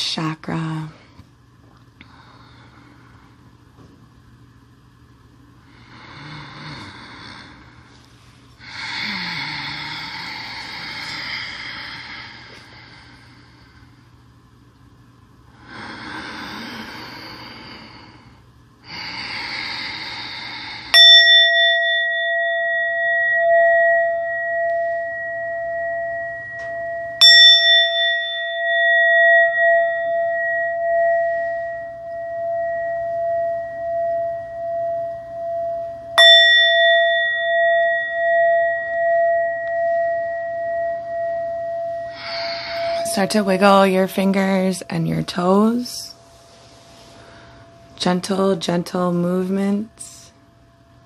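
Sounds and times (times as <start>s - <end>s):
singing bowl ringing: 19.2s - 51.0s.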